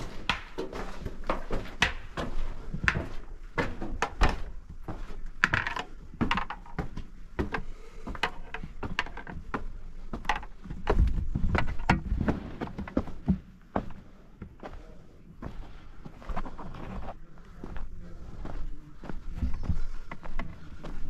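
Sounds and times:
sharp knocks and thuds: 0.0s - 14.6s.

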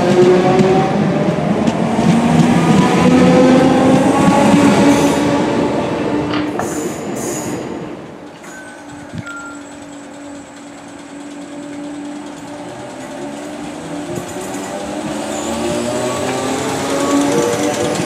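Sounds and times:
electric train humming: 8.1s - 18.0s
electric train pulling away: 8.3s - 18.0s.

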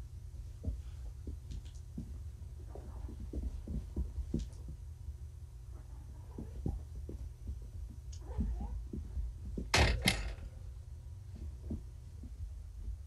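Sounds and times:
steady low hum: 0.0s - 13.0s
light taps on carpet: 0.5s - 4.9s.

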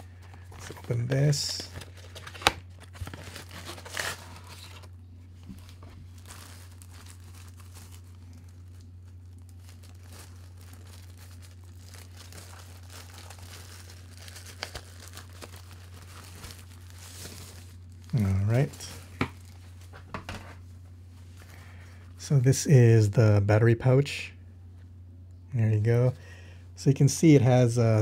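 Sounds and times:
packaging crinkling and tearing: 0.0s - 20.0s
low hum: 0.0s - 27.0s.

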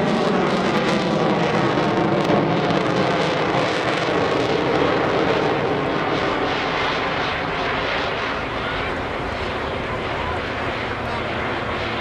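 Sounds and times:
biplane engine drone: 0.0s - 12.0s.

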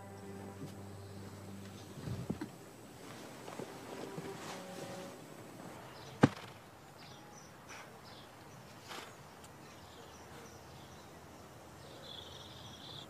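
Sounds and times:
birds chirping: 0.0s - 13.0s
insects chirping: 0.0s - 13.0s
sharp knock: 6.2s - 6.6s.

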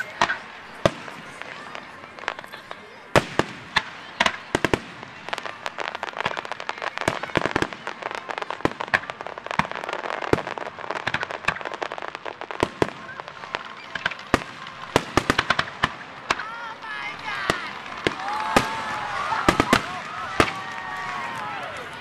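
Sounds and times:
fireworks bursting with bangs: 0.0s - 22.0s
fireworks crackling: 0.0s - 22.0s.

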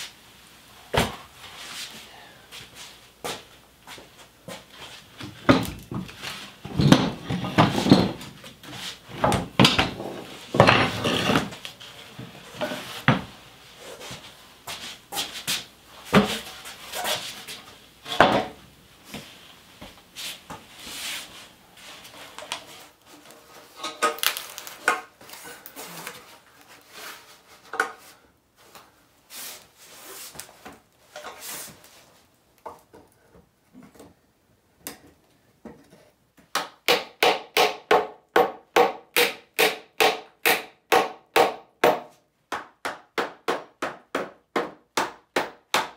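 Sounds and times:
wood-on-wood knocks and scrapes: 4.5s - 13.4s, 14.0s - 18.6s.

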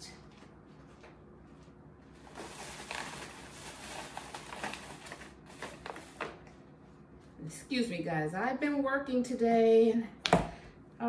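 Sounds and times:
packaging rustling: 2.2s - 6.5s.

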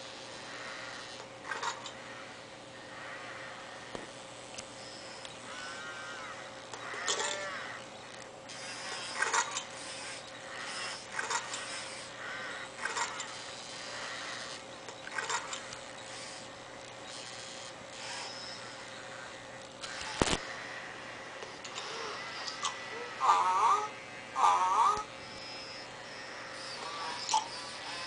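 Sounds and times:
faint steady hum: 0.0s - 28.0s
small pitched electronic calls: 4.6s - 20.5s, 21.5s - 28.0s
robot toy rasping chewing noises: 6.7s - 19.0s, 21.4s - 28.0s.

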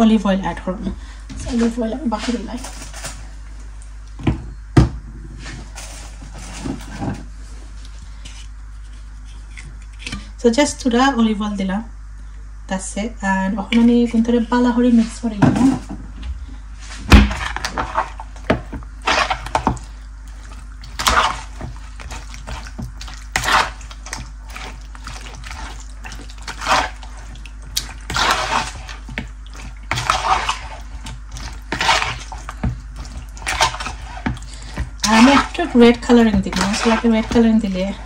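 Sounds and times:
spoon stirring wet marinade: 17.4s - 38.0s.

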